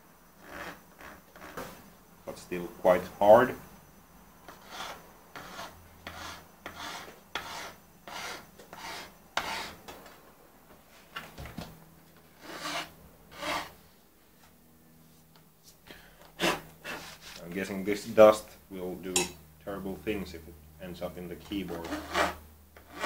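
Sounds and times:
hand file rasping on metal: 0:04.5 - 0:09.8, 0:12.4 - 0:13.7, 0:21.7 - 0:23.0.

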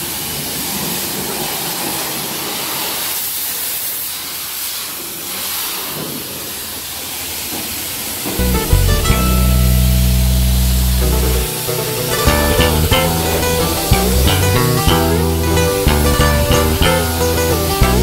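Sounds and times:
music with heavy bass: 0:08.4 - 0:18.0.

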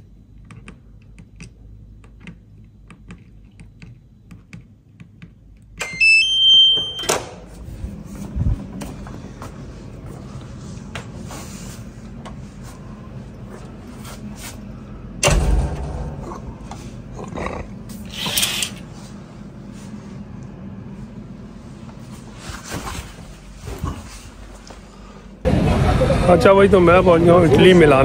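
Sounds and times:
ventilation hum: 0:00.0 - 0:28.0
loud knock: 0:15.2 - 0:16.5.

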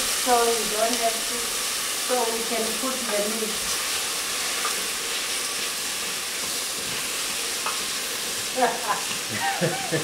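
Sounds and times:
meat sizzling in a pot: 0:00.0 - 0:10.0.

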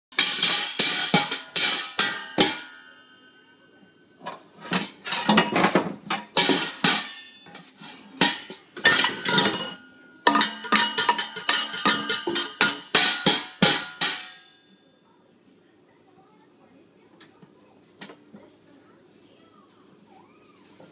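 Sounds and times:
wooden spoon banging metal pots: 0:00.1 - 0:03.4, 0:04.2 - 0:14.6.

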